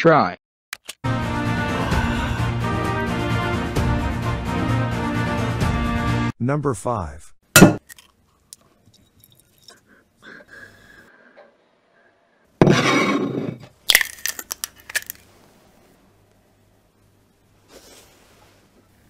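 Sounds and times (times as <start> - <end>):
eggshell cracking: 7.6 - 9.8, 13.8 - 15.2.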